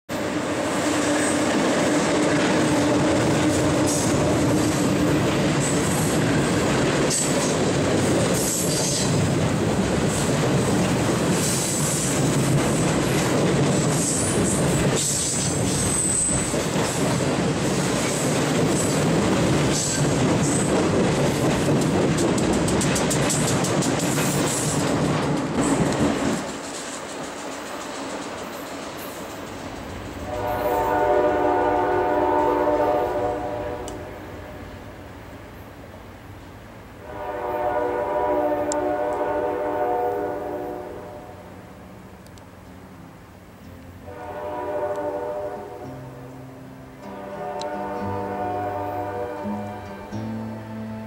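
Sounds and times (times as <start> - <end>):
freight train rumbling over bridge: 0.1 - 51.0
low locomotive tone: 0.1 - 51.0
wheels clattering on rails: 1.0 - 30.8.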